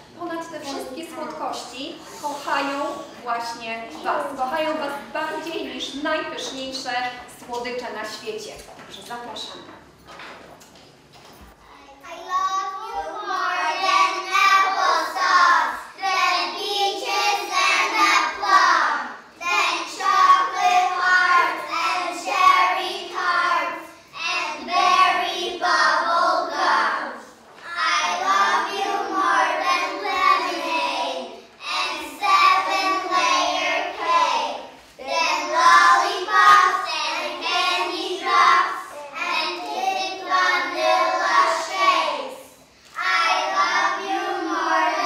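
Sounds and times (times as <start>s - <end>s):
children reciting in unison: 11.8s - 45.0s.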